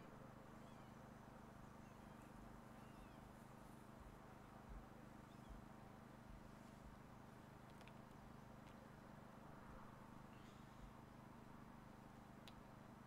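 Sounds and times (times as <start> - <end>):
faint high chirps: 1.6 - 3.3.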